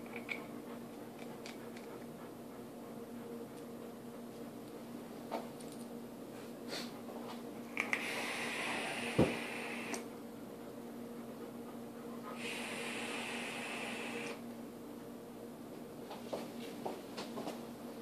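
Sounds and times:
steady low hum: 0:00.0 - 0:18.0
rushing hissing air: 0:07.9 - 0:10.1, 0:12.3 - 0:14.4.

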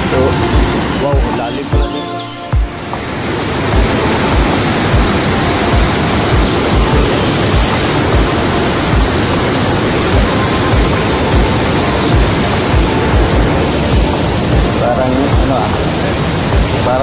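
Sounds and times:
low thumps: 0:00.0 - 0:16.8
waterfall roaring: 0:00.0 - 0:17.0.

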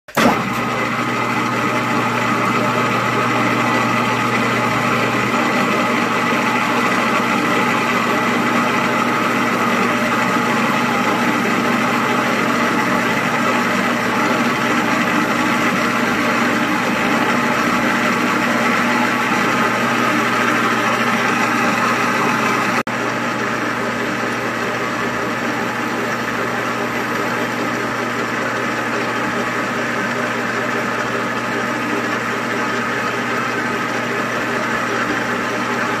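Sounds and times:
metal lathe running: 0:00.1 - 0:36.0.

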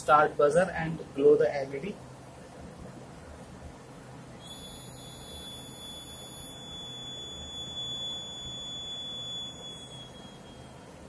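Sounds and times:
high-pitched buzzer tone: 0:04.4 - 0:11.0.

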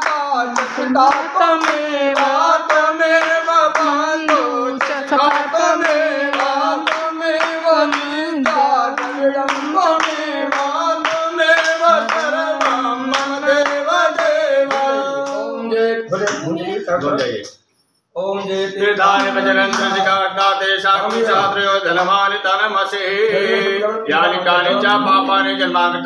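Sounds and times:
hand clapping on the beat: 0:00.0 - 0:15.5, 0:19.1 - 0:22.2
people singing a hymn: 0:00.0 - 0:16.1, 0:18.8 - 0:22.0, 0:22.9 - 0:26.0.

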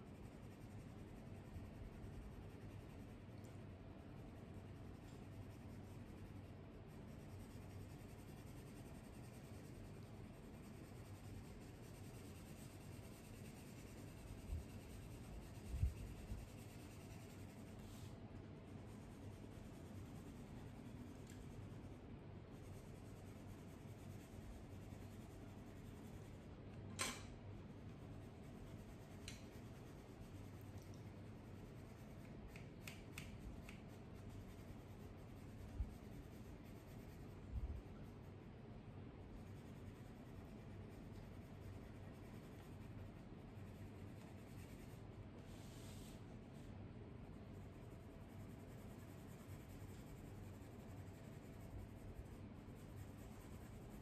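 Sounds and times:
pencils scratching on paper: 0:00.0 - 0:26.6, 0:27.7 - 0:38.5, 0:39.2 - 0:54.0
sharp click: 0:26.8 - 0:27.4.

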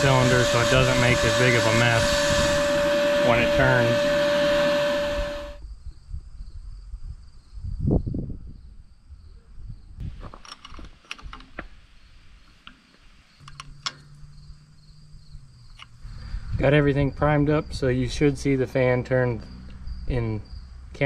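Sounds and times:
high-pitched trill: 0:00.0 - 0:05.6.

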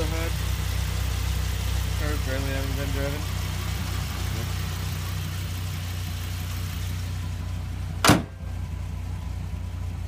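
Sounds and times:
car engine idling: 0:00.0 - 0:10.0
car hood slammed shut: 0:08.0 - 0:08.4.

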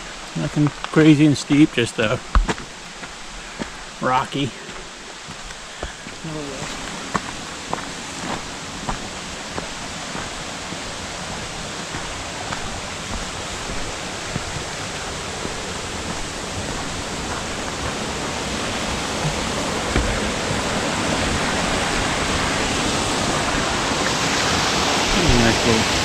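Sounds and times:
brook rushing over rocks: 0:00.0 - 0:26.0
soft low thumps: 0:19.2 - 0:20.8.

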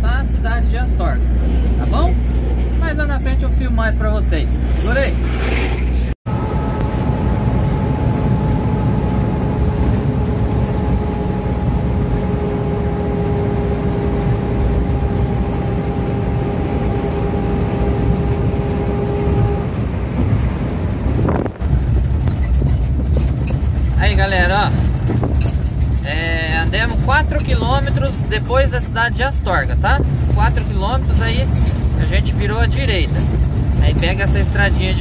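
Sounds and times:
car road noise rumble: 0:00.0 - 0:35.0
two-note hum: 0:06.3 - 0:20.6.

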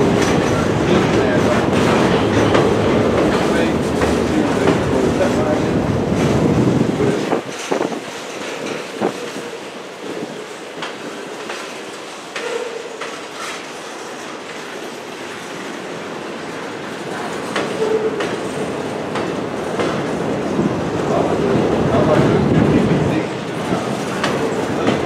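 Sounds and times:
train wheels clicking over rail joints: 0:00.0 - 0:25.0
train wheel squeals: 0:12.4 - 0:15.2, 0:17.7 - 0:18.4.

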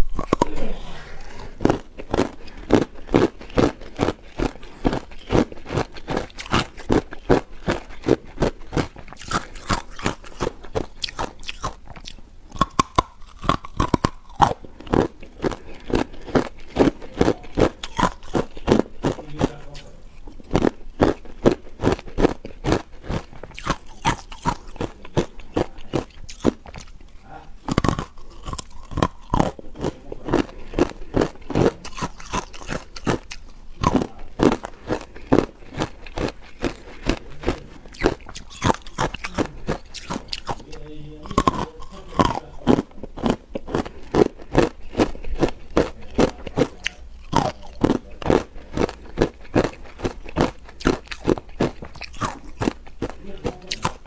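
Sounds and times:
ice being chewed with crunches: 0:00.0 - 0:00.6, 0:01.2 - 0:54.0.

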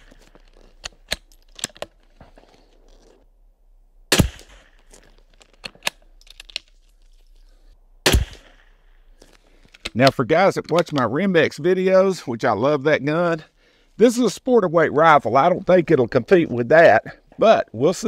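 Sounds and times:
rifle bolt clicks: 0:00.0 - 0:01.9
rifle shots: 0:04.1 - 0:04.9, 0:08.0 - 0:08.9.

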